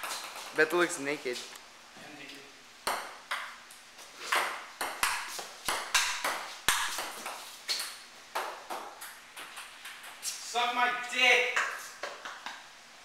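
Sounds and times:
ping-pong ball hitting paddles: 0.0 - 0.6, 2.8 - 3.6, 4.2 - 10.2, 11.4 - 12.6.

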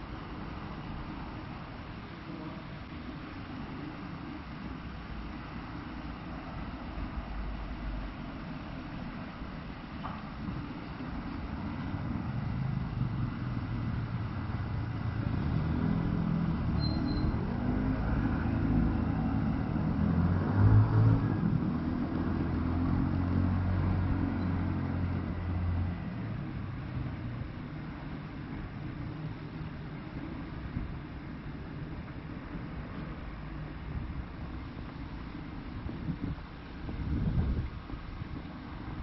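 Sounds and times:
street background noise: 0.0 - 39.0
vehicle engine passing by: 11.7 - 27.0.

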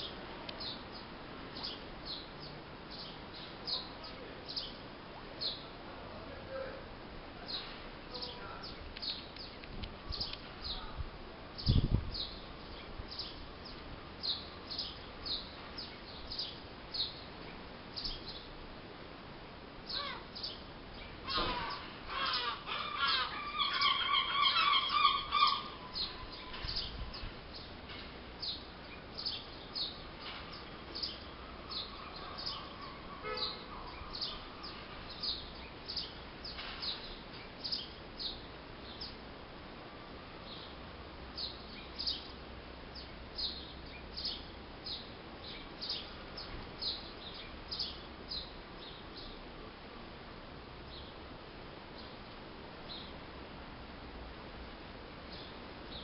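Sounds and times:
small bird chirping: 0.0 - 4.8, 7.5 - 11.0, 11.6 - 18.5, 28.4 - 39.2
harsh bird calls: 19.9 - 27.8, 28.4 - 39.2.

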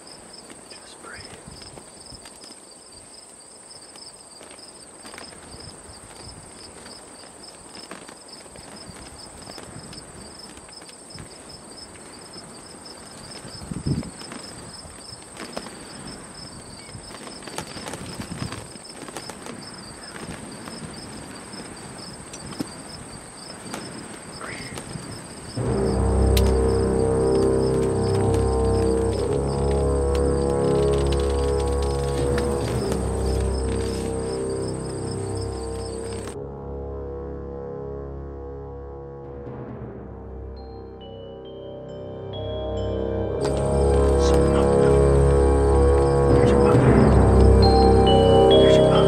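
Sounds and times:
insects chirping: 0.0 - 36.4, 40.6 - 49.0
high-pitched insect buzz: 24.4 - 36.4, 43.4 - 48.7.

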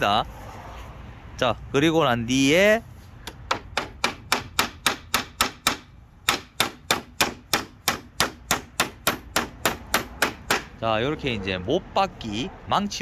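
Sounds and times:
hammer driving nail into wood: 3.2 - 10.7.

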